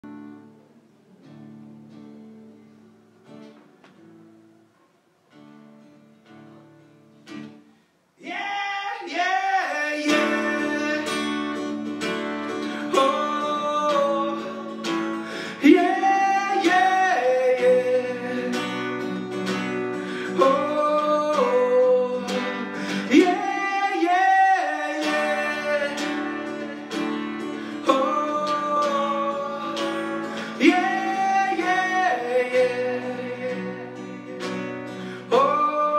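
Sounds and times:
soft guitar: 0.0s - 35.9s
man singing: 8.2s - 35.9s.

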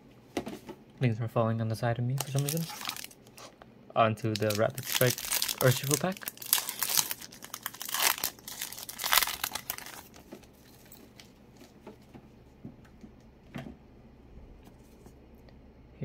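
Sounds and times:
foil wrapper tearing and crinkling: 2.2s - 3.4s, 4.3s - 10.2s.

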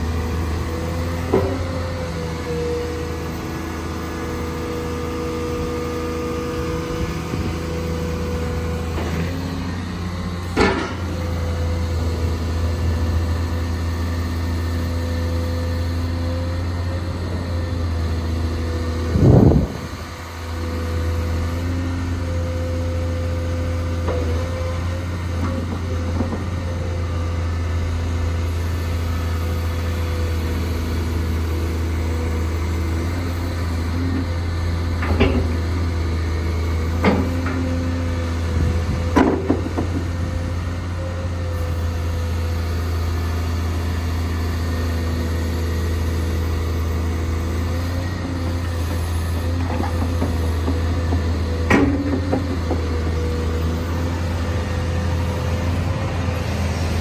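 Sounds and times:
excavator diesel engine running: 0.0s - 57.0s
excavator knocks and thumps: 1.2s - 1.8s, 10.4s - 11.2s, 25.4s - 26.6s, 35.0s - 35.7s, 36.9s - 37.7s, 38.6s - 40.3s, 48.8s - 53.5s.

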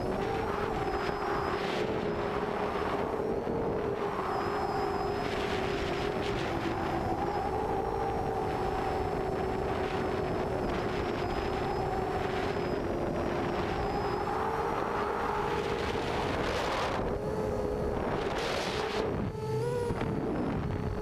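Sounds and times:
drone motors buzzing: 0.0s - 21.0s.

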